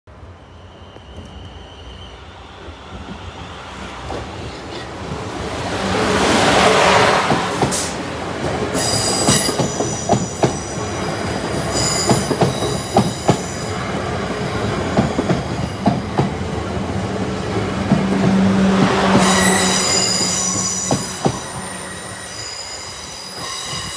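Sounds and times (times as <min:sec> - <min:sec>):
train rushing past: 0:00.1 - 0:23.9.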